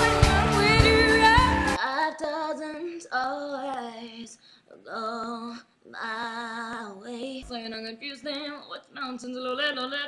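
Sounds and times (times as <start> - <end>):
woman singing: 0.0 - 10.0.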